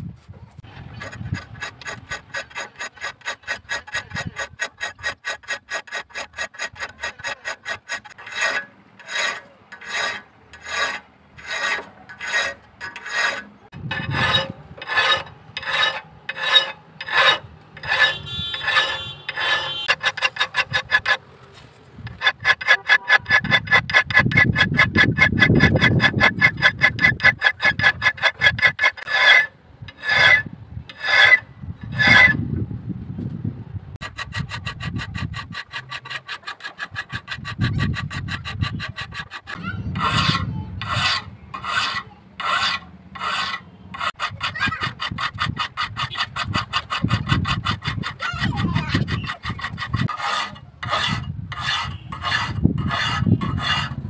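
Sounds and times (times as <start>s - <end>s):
hand file rasping on steel: 0.8s - 21.2s, 22.0s - 32.4s, 34.0s - 54.0s.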